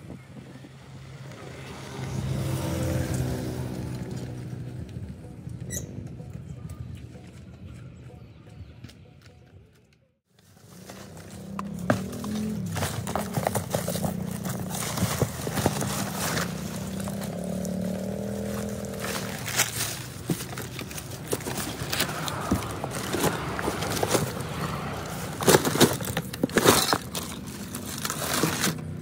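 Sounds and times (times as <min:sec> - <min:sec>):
paper rustling: 0:10.4 - 0:17.4, 0:18.4 - 0:29.0.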